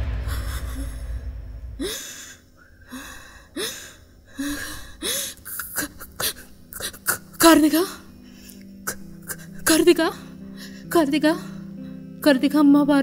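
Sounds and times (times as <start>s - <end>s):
low rumble: 0.0s - 4.2s
woman gasping and sobbing: 0.1s - 12.0s.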